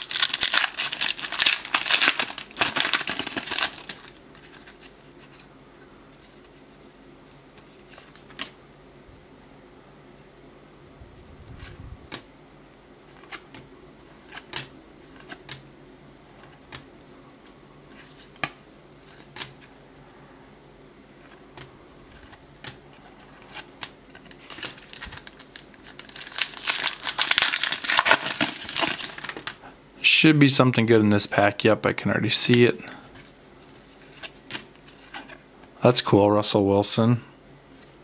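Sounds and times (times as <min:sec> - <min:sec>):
card pack wrapper crinkling: 0:00.0 - 0:05.4, 0:22.1 - 0:29.6.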